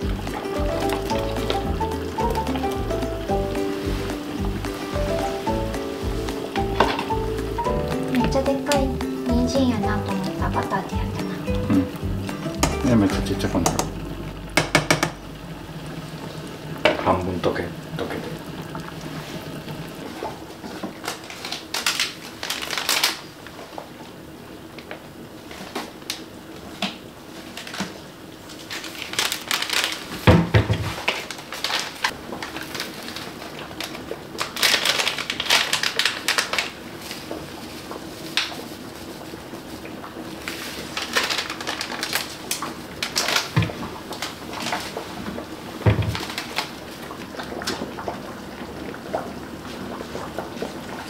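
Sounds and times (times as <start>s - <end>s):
paper packets rustling: 0.0s - 8.8s, 20.7s - 23.5s, 28.5s - 47.7s
dull knock: 12.6s - 12.8s.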